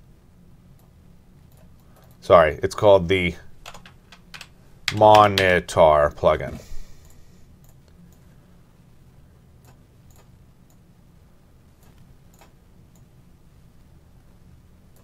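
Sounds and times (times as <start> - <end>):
computer mouse clicks: 9.6 - 10.8, 11.8 - 13.1.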